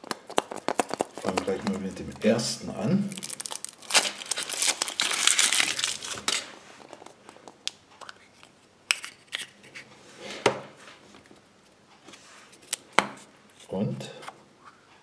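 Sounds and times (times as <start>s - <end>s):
chocolate shell cracking: 0.0s - 2.3s, 3.1s - 8.2s
plastic capsule handled: 0.0s - 2.5s
foil wrapper crinkling: 0.0s - 7.2s.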